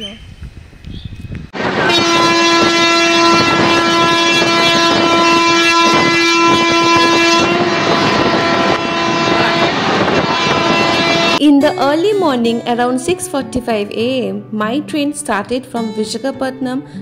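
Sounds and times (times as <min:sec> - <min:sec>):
moving train clatter: 0:01.6 - 0:11.4
train horn blast: 0:01.6 - 0:11.4, 0:12.7 - 0:14.0.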